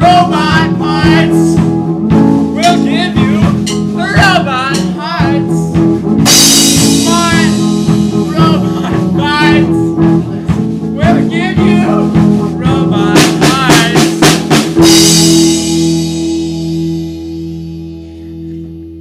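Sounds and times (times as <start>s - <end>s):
person singing: 0.0s - 1.7s, 2.4s - 5.7s, 6.5s - 15.6s
drum fill: 0.0s - 18.6s
rock guitar and drums: 0.0s - 19.0s.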